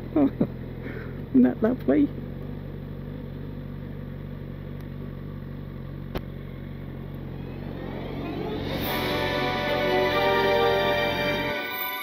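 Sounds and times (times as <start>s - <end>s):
motorcycle engine idling: 0.0s - 8.2s.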